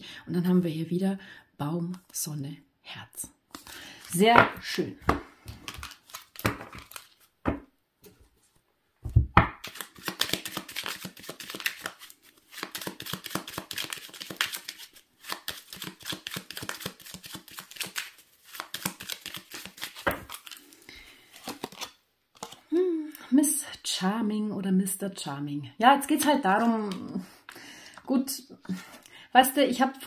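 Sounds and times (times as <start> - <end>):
cards being shuffled: 3.5 - 7.3, 9.5 - 22.7.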